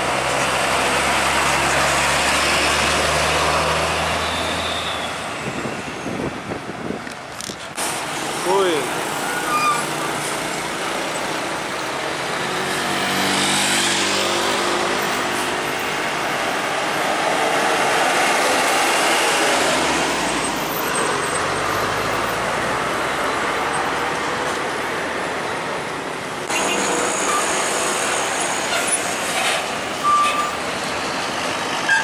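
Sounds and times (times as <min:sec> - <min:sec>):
truck passing close by: 0:00.0 - 0:06.6
traffic going by: 0:00.0 - 0:32.0.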